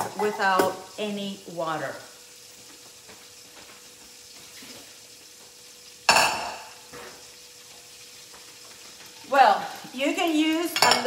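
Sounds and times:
metal cookware clanging: 0.0s - 1.0s, 6.1s - 7.2s, 10.2s - 11.0s
chicken sizzling in a pan: 0.0s - 11.0s.

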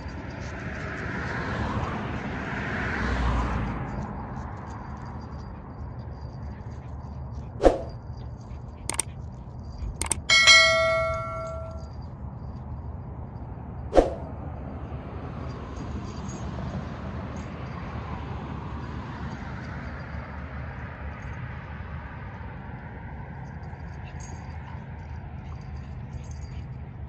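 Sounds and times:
metallic clang ringing: 10.0s - 12.0s.

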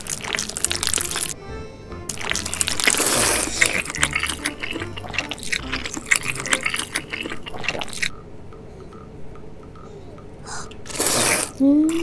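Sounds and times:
chewing mouth clicks and smacks: 0.0s - 1.4s, 2.1s - 8.1s
noodles being slurped: 0.0s - 1.4s, 2.1s - 8.1s, 10.8s - 12.0s.

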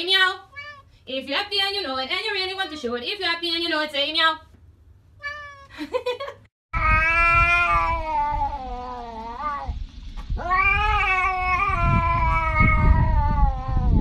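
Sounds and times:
cat yowling: 0.5s - 0.9s, 5.2s - 5.7s, 6.8s - 9.8s, 10.4s - 14.0s.

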